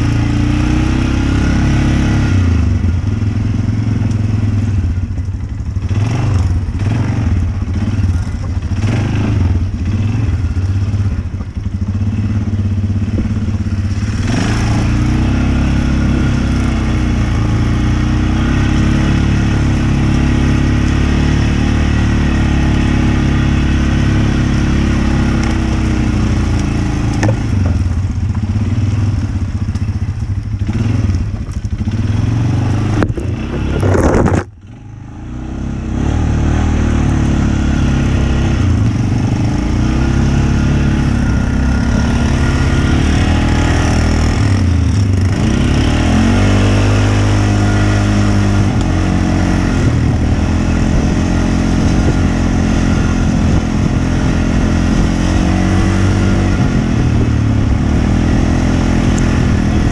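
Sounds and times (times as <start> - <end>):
off-road vehicle engine revving: 0.0 - 59.9.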